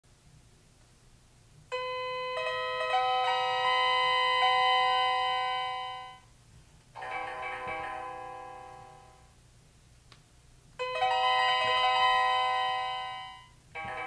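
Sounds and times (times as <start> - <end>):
electronic keyboard sustained chord: 7.0 - 9.3.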